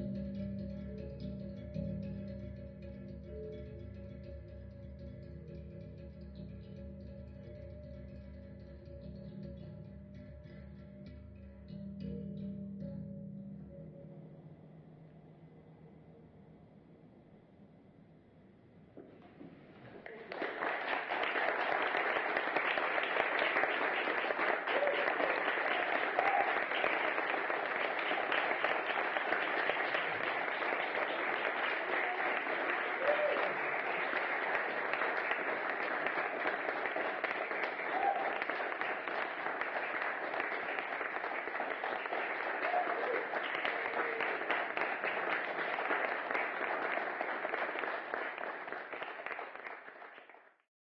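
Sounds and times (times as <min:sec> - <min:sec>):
audience applauding: 0:19.9 - 0:50.7.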